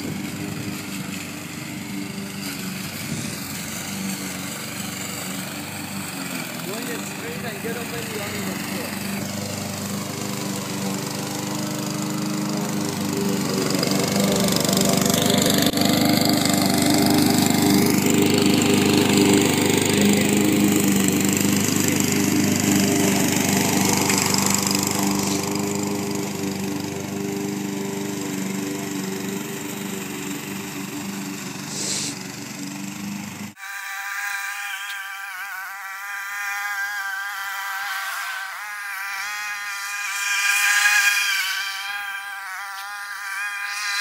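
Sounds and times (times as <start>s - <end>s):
lawn mower engine cutting grass: 0.0s - 44.0s.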